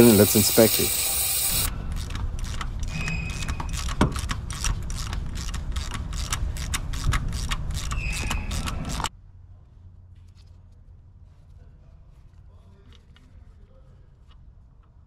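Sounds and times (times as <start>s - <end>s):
ratchet wrench clicking: 0.0s - 9.1s.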